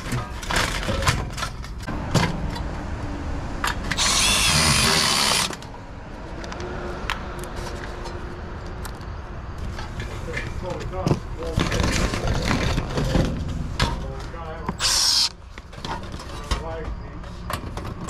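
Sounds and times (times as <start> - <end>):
cordless drill driving screw into metal: 3.9 - 5.6, 14.8 - 15.4.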